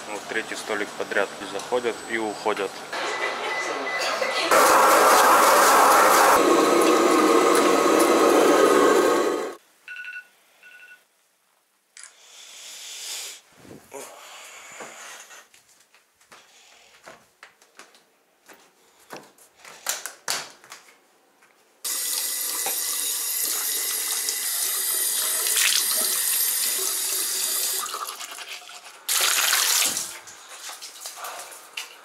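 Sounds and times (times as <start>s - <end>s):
tap water splashing over hands: 29.2s - 32.0s.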